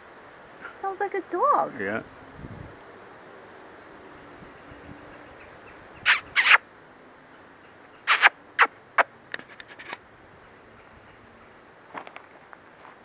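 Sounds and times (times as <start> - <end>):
vulture giving woof-like calls: 5.4 - 6.6, 8.0 - 9.1.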